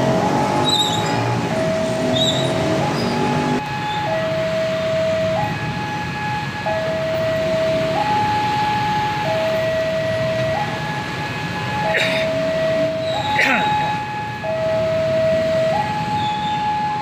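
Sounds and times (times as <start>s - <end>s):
road traffic hum: 0.0s - 17.0s
level crossing two-tone alarm: 11.7s - 17.0s.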